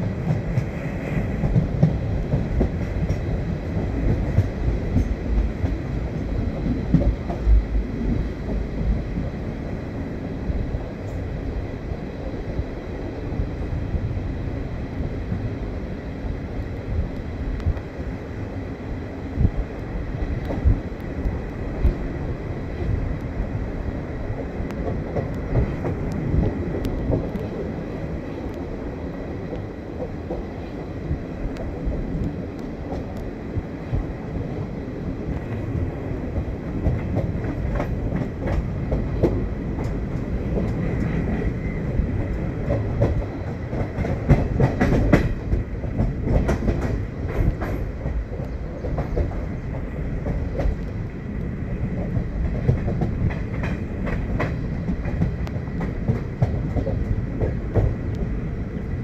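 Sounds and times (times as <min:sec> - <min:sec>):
clickety-clack over track: 0:00.0 - 0:59.0
train wheels rumbling on rails: 0:00.0 - 0:59.0.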